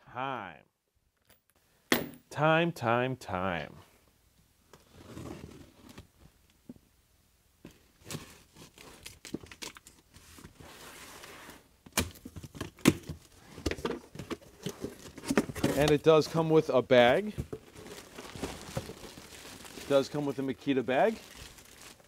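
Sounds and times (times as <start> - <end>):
cardboard rustling: 16.9 - 22.0.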